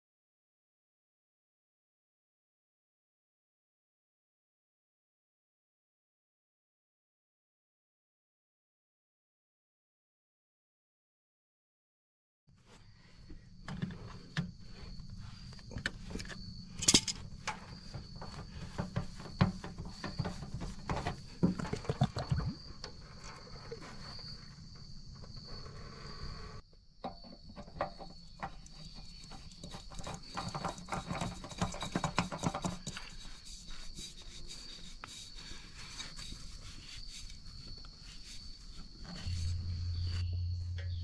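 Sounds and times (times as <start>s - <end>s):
high insect trill: 12.9s - 41.0s.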